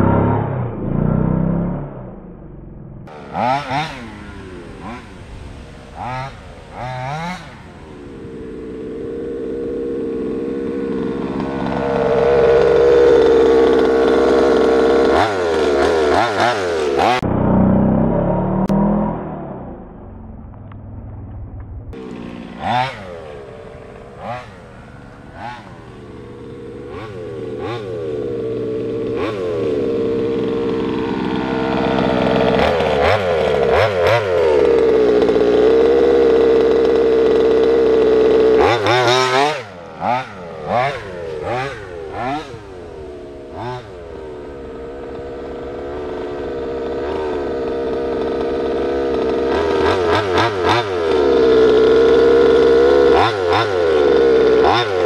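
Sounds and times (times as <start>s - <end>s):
small two-stroke engine revving: 0.0s - 20.3s, 21.9s - 55.0s.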